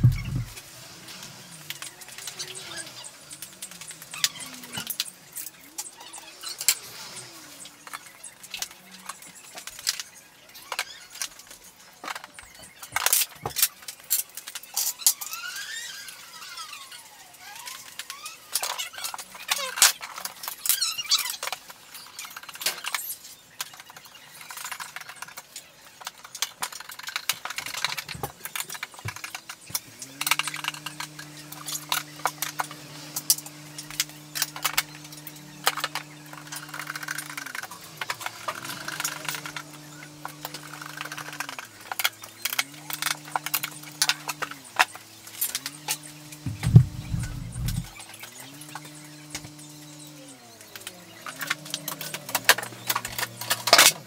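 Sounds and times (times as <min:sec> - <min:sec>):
low hum: 0:00.0 - 0:04.8, 0:30.0 - 0:53.9
squeak: 0:14.8 - 0:19.8, 0:20.4 - 0:23.2.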